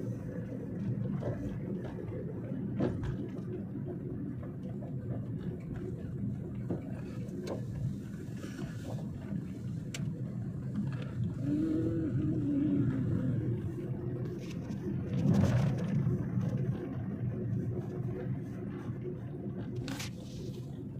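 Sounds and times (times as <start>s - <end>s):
car engine and road noise: 0.0s - 20.9s.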